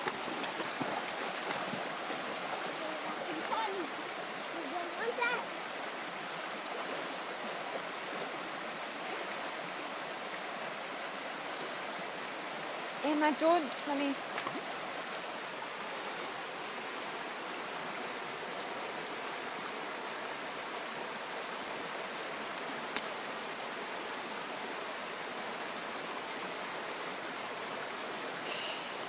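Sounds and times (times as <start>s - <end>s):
stream rushing over stones: 0.0s - 29.0s.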